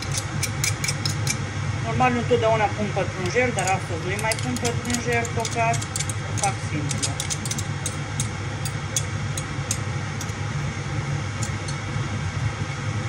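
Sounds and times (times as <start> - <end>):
fork scraping metal garlic press: 0.0 - 1.4, 3.2 - 10.4
low hum and hiss: 0.0 - 13.0.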